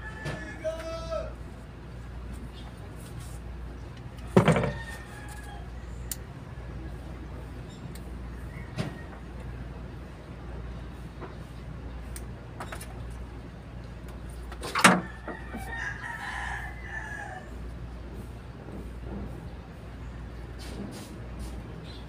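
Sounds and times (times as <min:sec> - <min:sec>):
rooster crowing: 0:00.0 - 0:01.2, 0:04.2 - 0:06.1, 0:14.9 - 0:17.7.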